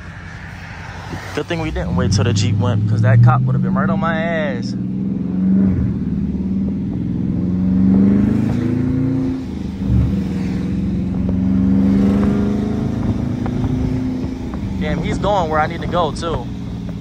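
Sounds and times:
car engine accelerating from inside: 0:00.8 - 0:17.0.

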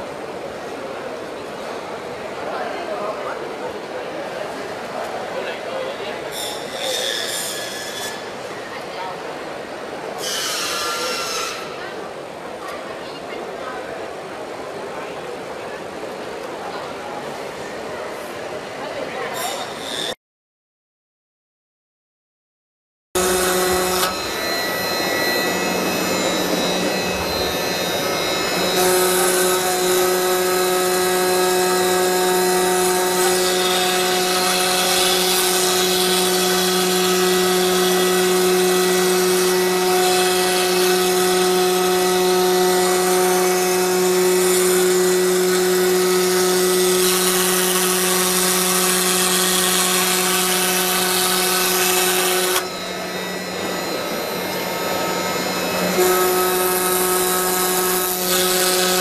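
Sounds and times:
router spindle whine: 0:23.2 - 0:59.0.

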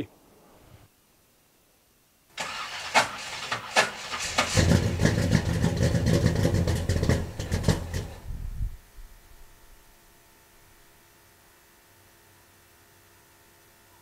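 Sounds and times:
engine starter cranking: 0:02.4 - 0:08.2
engine running: 0:02.4 - 0:09.9.

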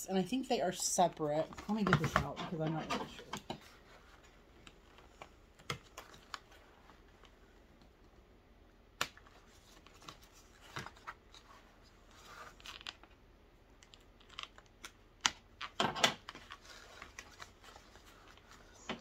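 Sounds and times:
plastic and cardboard rustling: 0:01.2 - 0:07.6, 0:09.2 - 0:13.2, 0:13.8 - 0:19.0.

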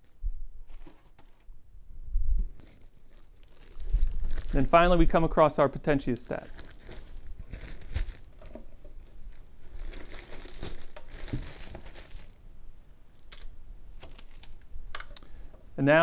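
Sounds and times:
plastic bag crinkling: 0:02.4 - 0:05.1, 0:06.2 - 0:14.7.

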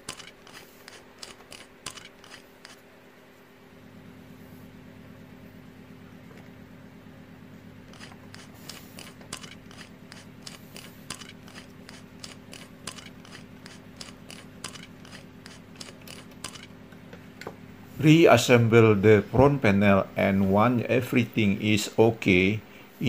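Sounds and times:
screwdriver clicking: 0:00.0 - 0:02.8, 0:07.9 - 0:16.7.

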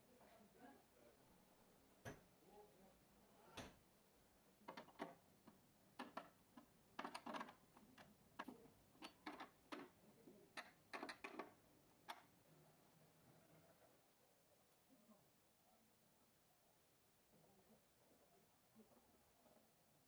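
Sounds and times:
faint irregular clicks and taps: 0:02.0 - 0:02.3, 0:03.6 - 0:03.8, 0:04.6 - 0:10.0, 0:10.6 - 0:12.4.

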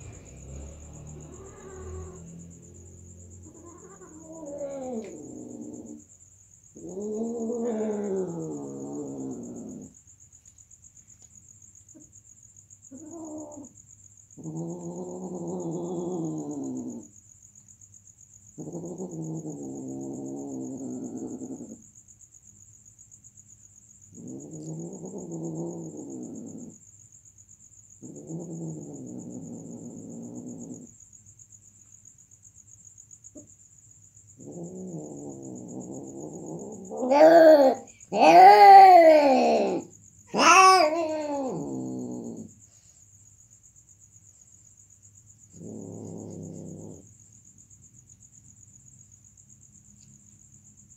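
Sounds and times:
cat yowling: 0:00.0 - 0:02.6, 0:03.3 - 0:06.0, 0:36.7 - 0:42.3
crickets chirping: 0:00.0 - 0:50.9.

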